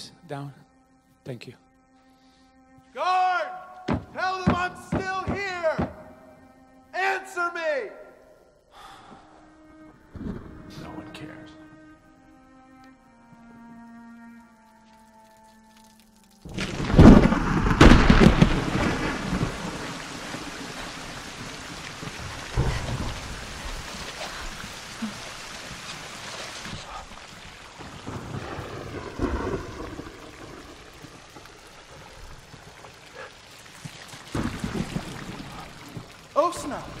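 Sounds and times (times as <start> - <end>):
steady rain: 8.8 - 37.0
rolling thunder: 16.5 - 24.8, 27.7 - 32.9, 34.3 - 37.0
thunder clap: 16.5 - 25.1, 27.8 - 32.9, 34.3 - 37.0.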